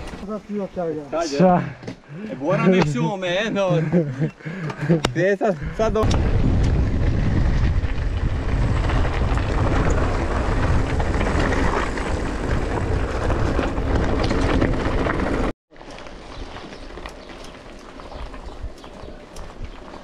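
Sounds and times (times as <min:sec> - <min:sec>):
bike tyre noise: 0:00.0 - 0:20.0
wind buffeting microphone: 0:03.8 - 0:15.5, 0:16.2 - 0:20.0.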